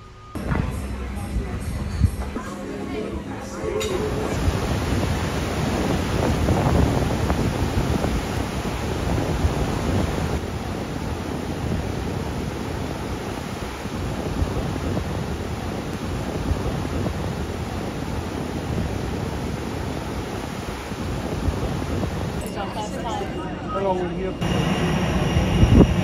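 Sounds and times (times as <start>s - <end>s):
surf washing over rocky shore: 3.9s - 22.4s
wind rumbling on microphone: 3.9s - 22.4s, 24.4s - 26.0s.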